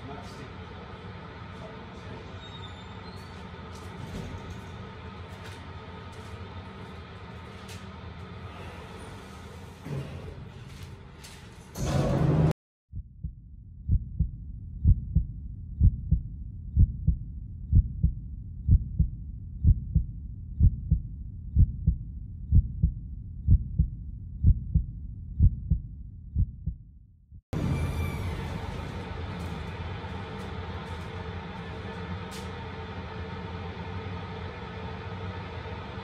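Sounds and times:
heartbeat thumps: 12.9 - 27.4.

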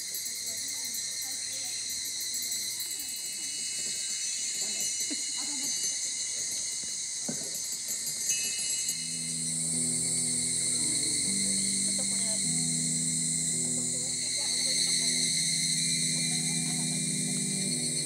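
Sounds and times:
insects buzzing: 0.0 - 18.0
thin high ringing tone: 0.0 - 18.0
low sustained music notes: 8.2 - 18.0.

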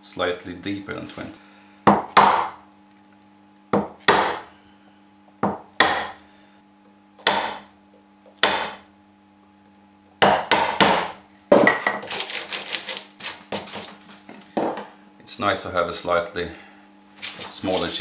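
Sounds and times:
mallet striking a chisel: 1.9 - 2.6, 3.8 - 4.4, 5.4 - 6.2, 7.2 - 7.7, 8.4 - 8.8, 10.2 - 11.8.

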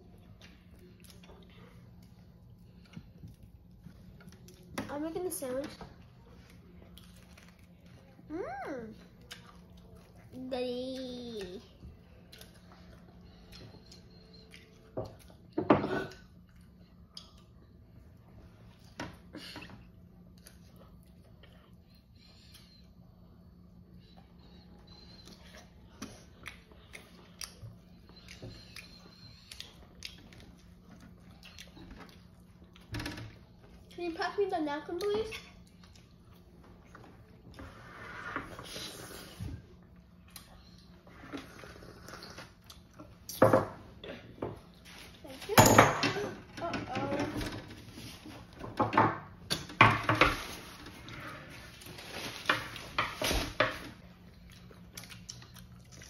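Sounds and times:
faint steady hum: 0.0 - 56.0
chewing: 0.2 - 4.8, 6.0 - 8.3, 9.1 - 10.4, 11.0 - 19.0, 24.1 - 32.9, 35.0 - 37.6, 39.9 - 43.4, 54.0 - 56.0
tableware knocking and clattering: 45.6 - 46.4.

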